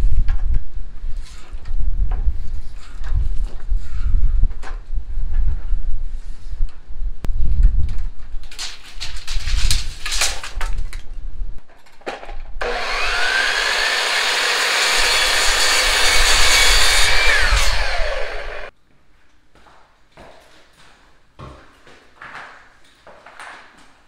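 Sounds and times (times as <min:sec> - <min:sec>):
miter saw cutting wood: 0:12.6 - 0:18.7.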